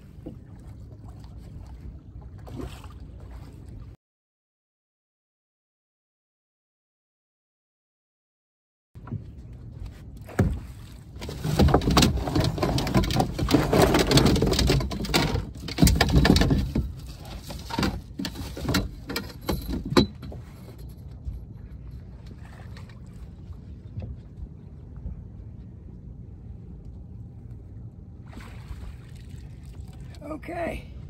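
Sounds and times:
sharp knocks and thumps: 11.2 - 20.4.

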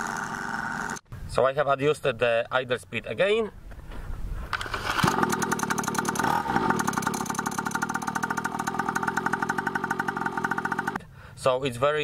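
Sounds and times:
two-stroke engine idling: 5.1 - 11.1.

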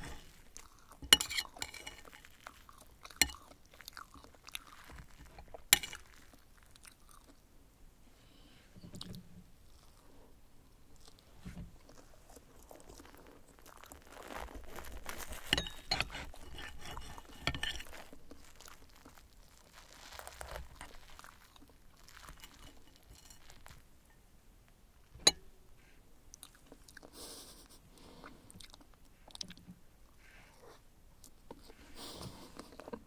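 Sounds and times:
cutlery scraping a plate: 0.0 - 0.4, 1.0 - 2.4, 5.2 - 6.1, 15.2 - 18.1, 22.2 - 23.8
chewing: 0.0 - 7.4, 8.9 - 23.8, 26.3 - 33.0.

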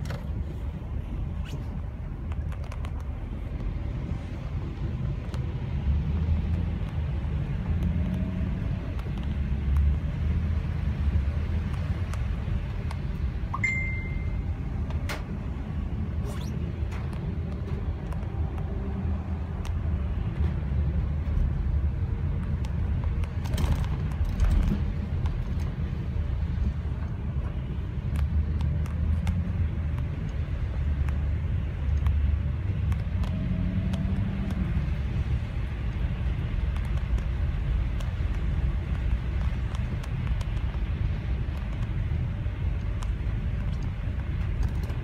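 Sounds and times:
car engine and road rumble: 0.0 - 45.0
tyres on wet road: 0.0 - 45.0
light ticks: 6.2 - 10.1, 24.0 - 45.0.

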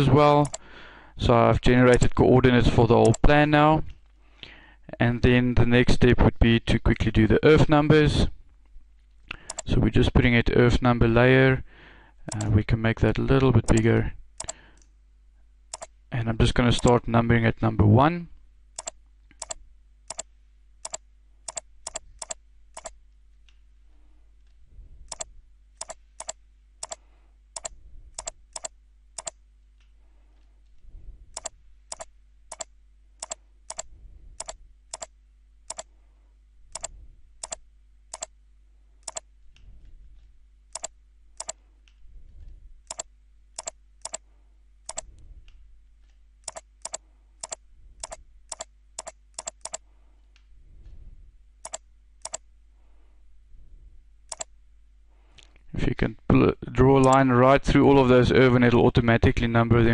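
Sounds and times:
computer mouse clicking: 0.4 - 0.6, 9.5 - 9.7, 12.3 - 12.5, 15.7 - 15.9, 18.8 - 23.6, 25.1 - 27.0, 27.6 - 29.9, 31.4 - 35.1, 35.7 - 35.9, 36.7 - 38.3, 39.0 - 39.7, 40.7 - 42.0, 42.9 - 44.2, 44.9 - 45.1, 46.4 - 50.5, 51.6 - 52.4, 54.3 - 54.5.

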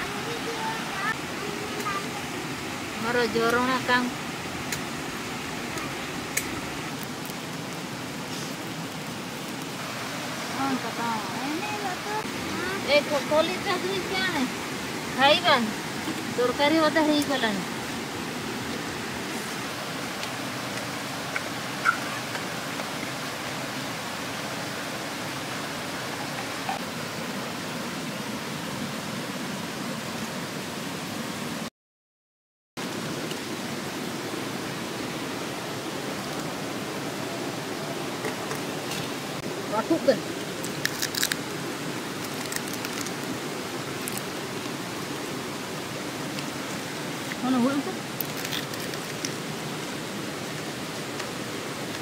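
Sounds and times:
stream flowing over rocks: 0.0 - 31.7, 32.8 - 52.0.

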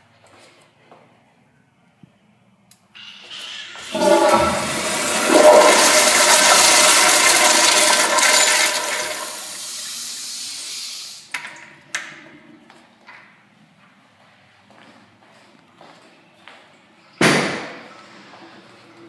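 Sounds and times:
toilet flushing: 3.0 - 11.3.

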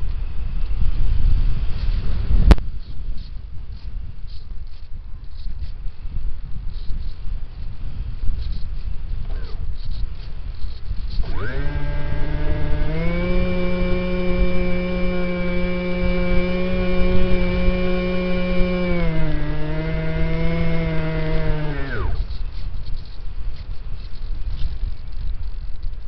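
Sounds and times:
airflow rumbling on microphone: 0.0 - 26.0
model plane motor and propeller whine: 8.4 - 26.0.

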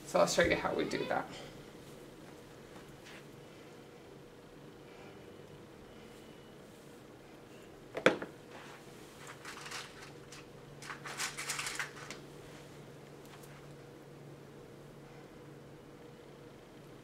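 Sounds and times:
scratchy rustling and clicking: 9.2 - 12.2.

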